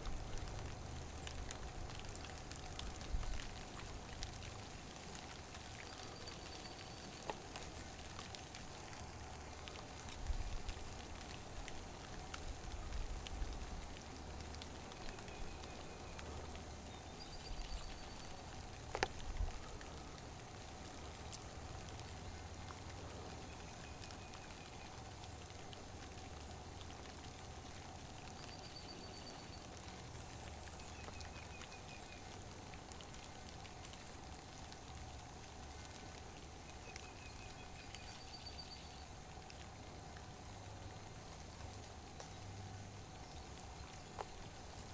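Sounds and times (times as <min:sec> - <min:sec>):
low hiss: 0:00.0 - 0:44.9.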